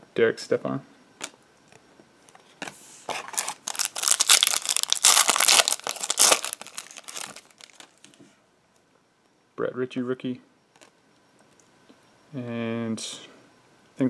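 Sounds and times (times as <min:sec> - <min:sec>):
foil wrapper tearing and crinkling: 0:03.2 - 0:08.0.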